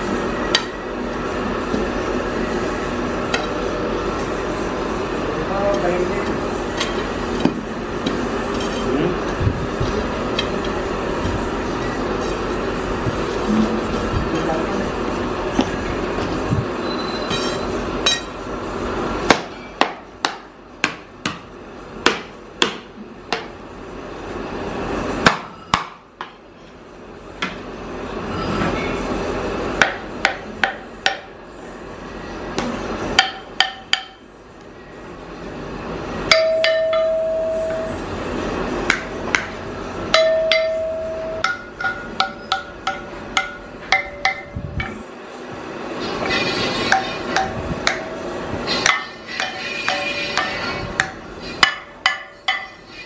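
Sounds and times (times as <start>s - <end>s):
bronze casting ringing: 36.3s - 38.3s, 40.1s - 44.5s
metal rod knocking on molds: 41.4s - 45.0s.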